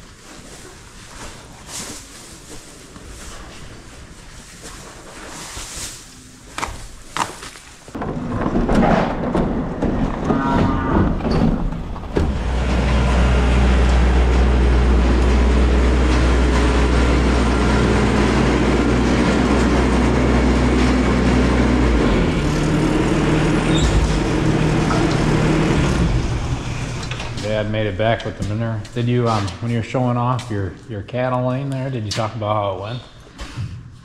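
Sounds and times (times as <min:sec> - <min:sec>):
tractor engine running: 0:09.5 - 0:30.0.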